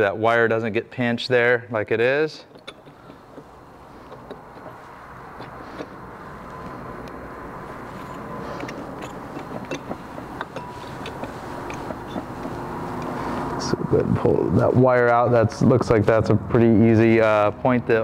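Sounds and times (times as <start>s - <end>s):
steady background hum: 0.0s - 18.0s
light metallic clicks and clinks: 7.9s - 12.3s.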